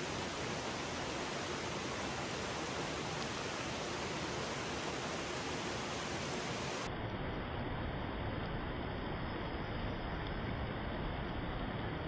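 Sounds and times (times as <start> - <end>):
stream flowing over stones: 0.0 - 12.0.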